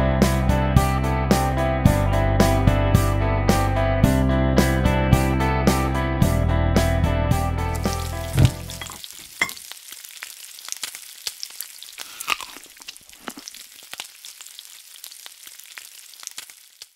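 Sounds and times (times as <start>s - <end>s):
food sizzling in a pan: 7.7s - 16.9s
sharp crackling pops: 10.0s - 16.9s.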